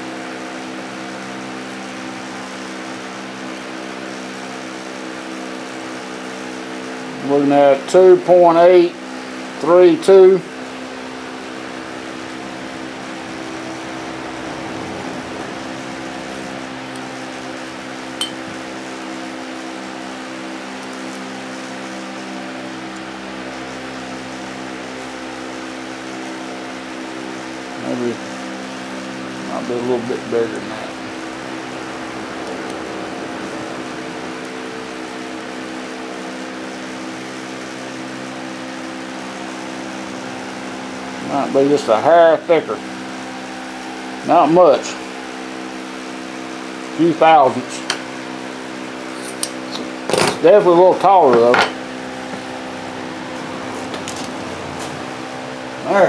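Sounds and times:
fan machine humming: 0:00.0 - 0:56.0.

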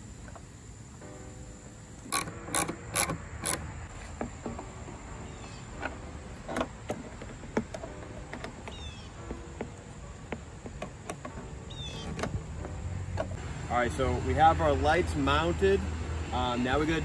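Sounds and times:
ratchet wrench clicking: 0:02.1 - 0:03.7
light clicks and knocks on metal: 0:05.7 - 0:13.4.

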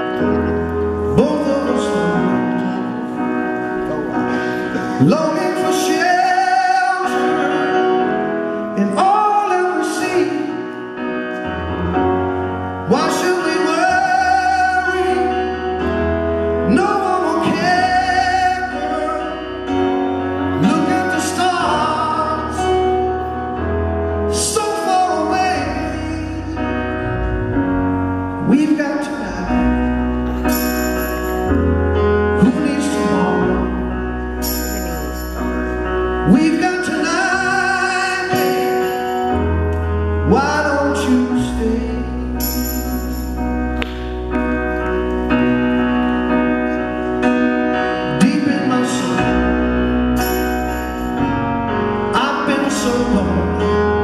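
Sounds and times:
man singing into microphone: 0:01.1 - 0:11.0, 0:12.8 - 0:23.1, 0:24.3 - 0:27.3, 0:28.3 - 0:30.1, 0:32.2 - 0:35.2, 0:36.2 - 0:39.4, 0:40.2 - 0:43.5, 0:47.8 - 0:50.0, 0:52.1 - 0:54.0.

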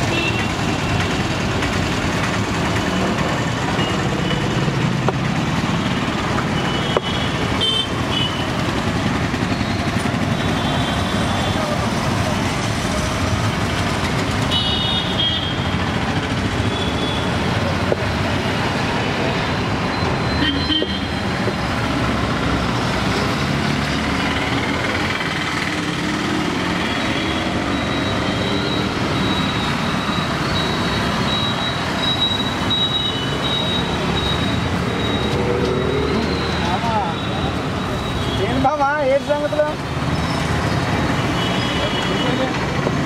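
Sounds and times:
busy street traffic roar: 0:00.0 - 0:43.0
vehicle horns tooting: 0:06.6 - 0:08.6, 0:14.4 - 0:15.8, 0:20.3 - 0:21.2.

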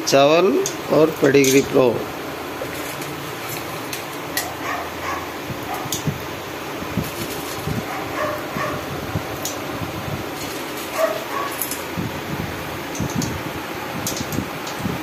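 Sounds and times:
dogs whining and yipping: 0:04.5 - 0:06.0, 0:07.9 - 0:08.9, 0:10.9 - 0:11.6.

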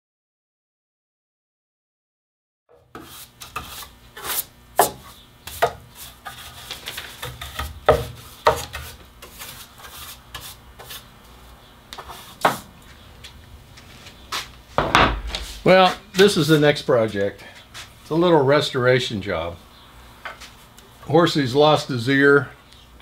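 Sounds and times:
bench brush scraping wood: 0:02.8 - 0:11.2, 0:12.0 - 0:13.0
sharp knocks: 0:14.8 - 0:15.7.

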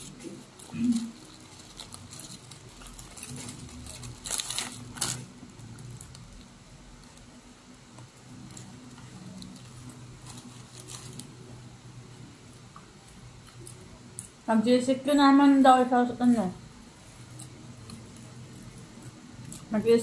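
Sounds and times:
paper wrapper crinkling: 0:00.0 - 0:11.6.

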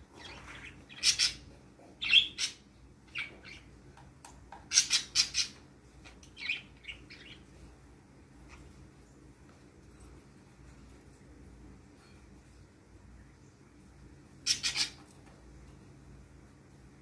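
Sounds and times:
budgerigars chirping: 0:00.2 - 0:03.7, 0:04.7 - 0:05.6, 0:06.3 - 0:07.5, 0:14.5 - 0:15.0.

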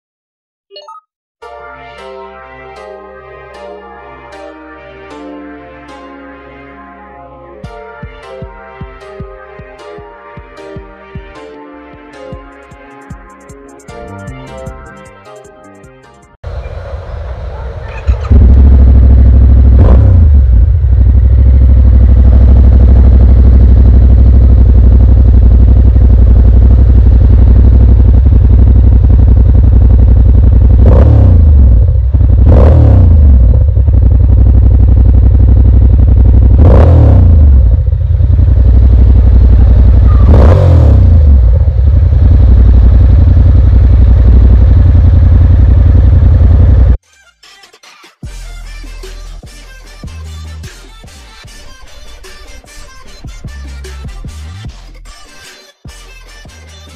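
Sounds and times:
motorcycle engine idling: 0:16.5 - 0:36.6, 0:37.2 - 0:47.0
throttle blips: 0:39.5 - 0:41.6.

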